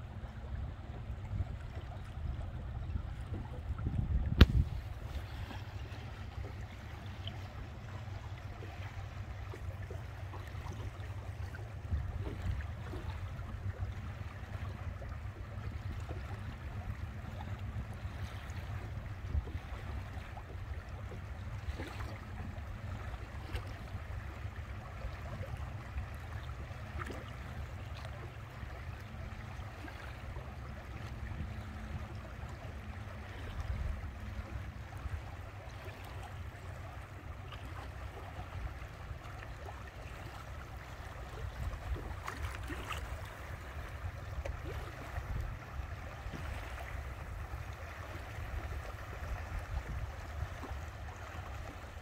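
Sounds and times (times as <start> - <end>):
steady low rumble: 0.0 - 52.0
water rushing past boat: 0.0 - 52.0
small splashes: 1.4 - 52.0.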